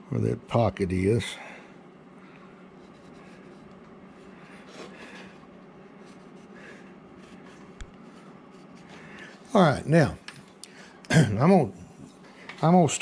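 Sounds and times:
pencil scratching on wood: 2.8 - 9.0.

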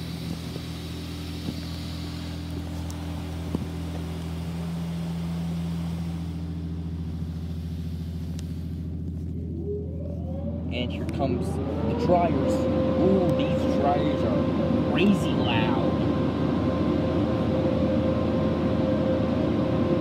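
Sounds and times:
water spraying onto car: 0.0 - 8.8
low hum of wash machinery: 0.0 - 20.0.

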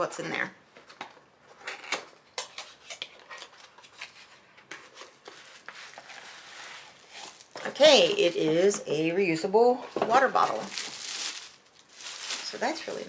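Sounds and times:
plastic packaging rustling: 2.6 - 8.3, 10.0 - 13.0.

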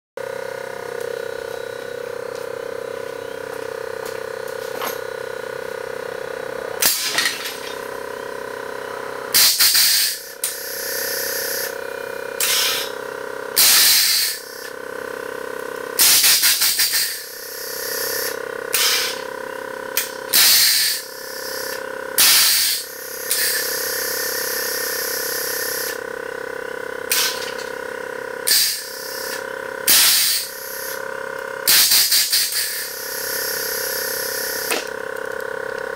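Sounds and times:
steady electric hum: 0.2 - 35.9
air valves hissing: 9.3 - 11.7, 12.4 - 12.9, 13.6 - 14.7, 16.0 - 19.3, 20.0 - 26.0, 27.1 - 27.7, 28.5 - 31.0, 31.7 - 35.0.

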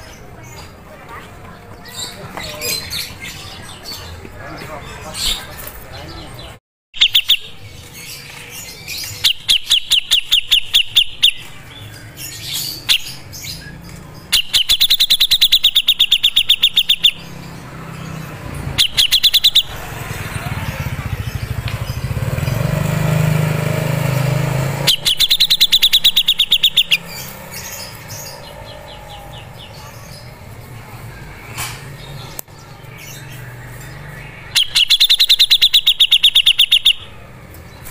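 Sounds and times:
bird singing rapid trills: 7.0 - 30.5, 32.0 - 37.9.

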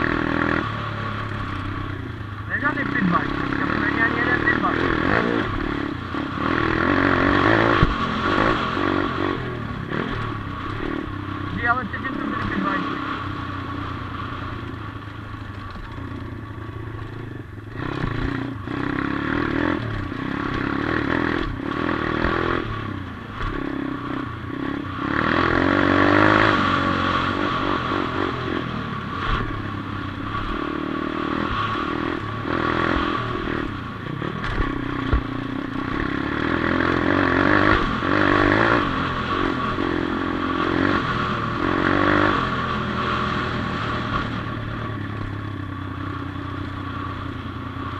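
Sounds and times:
dirt bike engine revving: 0.0 - 47.9
bike knocking and rattling: 15.0 - 17.2, 34.2 - 36.2.

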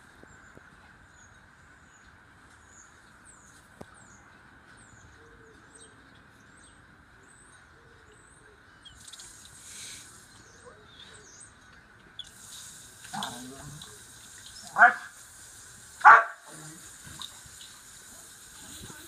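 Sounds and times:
faint hiss: 8.9 - 11.4, 12.2 - 19.0.

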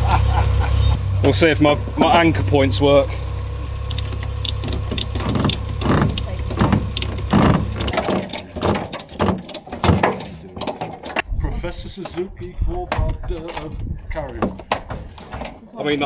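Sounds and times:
low hum: 0.0 - 9.6
ratchet strap clicking: 3.9 - 11.2.

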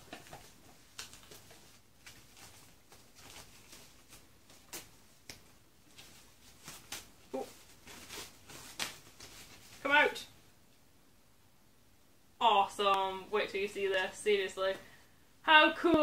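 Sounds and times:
wrapping rustling and crinkling: 0.0 - 10.3.

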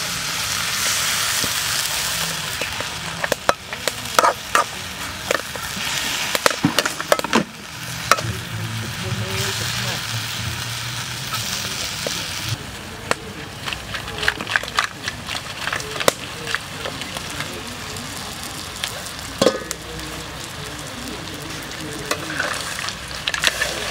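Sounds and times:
hot oil sizzling: 0.0 - 23.9
metal ladle scraping a wok: 0.8 - 12.2, 22.1 - 23.9.

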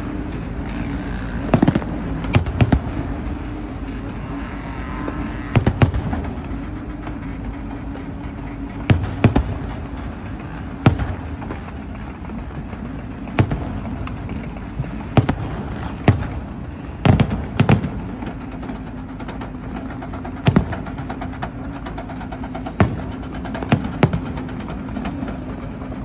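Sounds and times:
steady low hum: 0.0 - 26.0
fireworks bangs: 1.4 - 7.2, 8.9 - 26.0.

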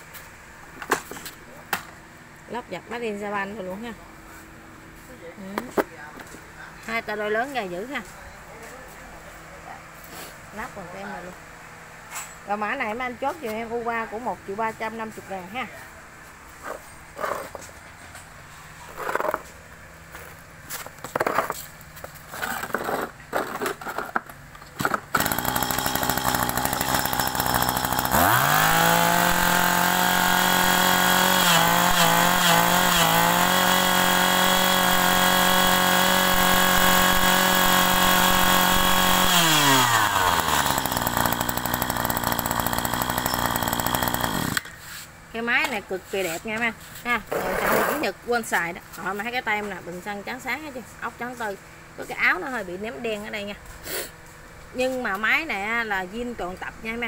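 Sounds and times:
brush cutter engine revving: 24.8 - 44.7.

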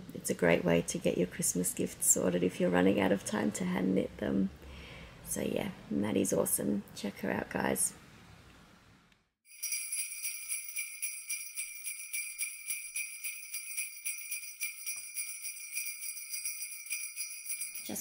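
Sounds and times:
sleigh bells jingling: 9.5 - 18.0.

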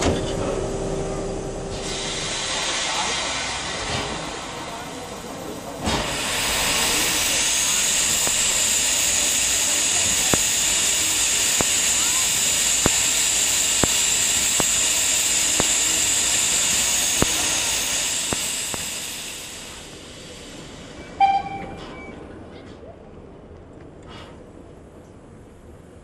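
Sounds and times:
steam hissing from locomotive: 1.7 - 21.2.

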